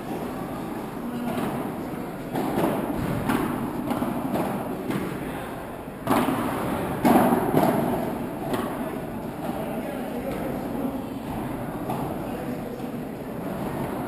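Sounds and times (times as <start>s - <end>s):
ball struck by rackets: 2.3s - 5.2s, 6.0s - 8.8s.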